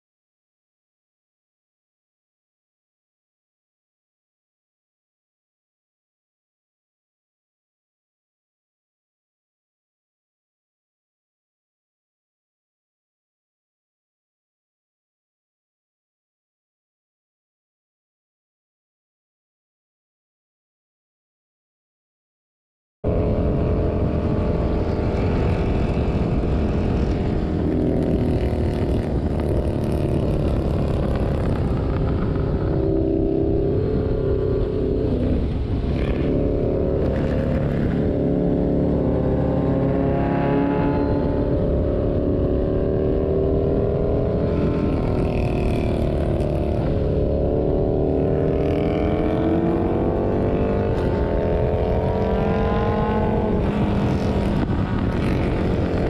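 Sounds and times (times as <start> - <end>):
motorcycle engine running: 23.1 - 56.0
wind rush: 23.1 - 56.0.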